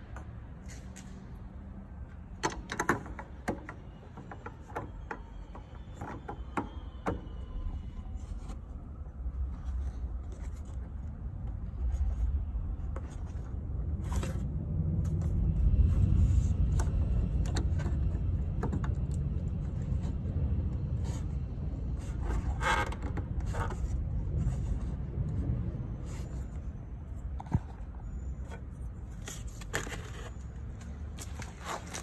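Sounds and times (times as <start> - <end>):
plastic clicks and scrapes: 28.4 - 32.0.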